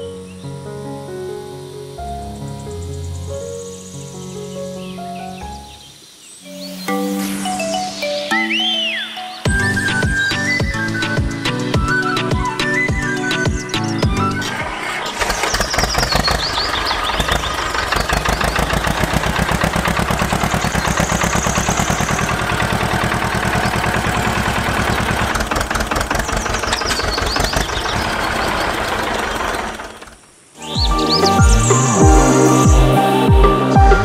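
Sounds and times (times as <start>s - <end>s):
tractor engine chugging: 9.5s - 30.2s.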